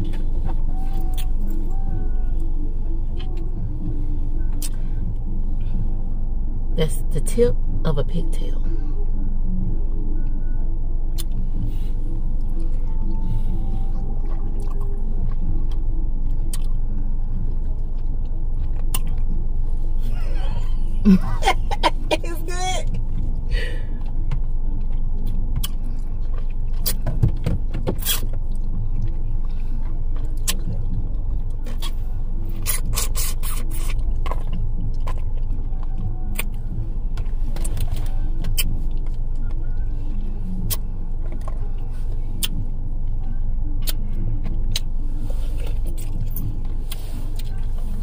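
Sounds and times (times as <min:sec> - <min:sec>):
car engine idling: 0:00.0 - 0:48.0
chewing clicks and smacks: 0:11.1 - 0:11.4, 0:14.2 - 0:19.5, 0:24.0 - 0:39.9, 0:40.6 - 0:45.0.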